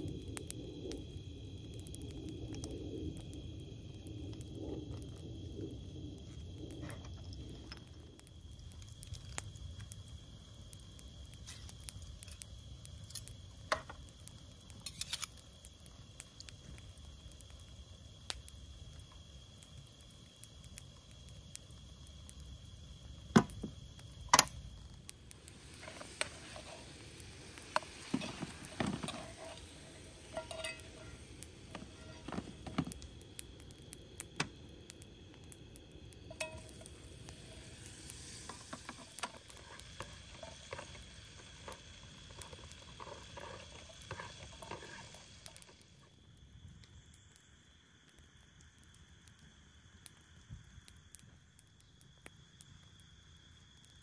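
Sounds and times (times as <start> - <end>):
small objects clicking: 11.4 - 16.6, 24.3 - 46.0.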